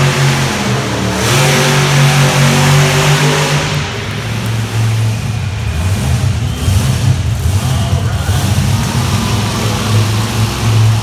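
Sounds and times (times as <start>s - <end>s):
monster truck engine revving: 0.0s - 11.0s.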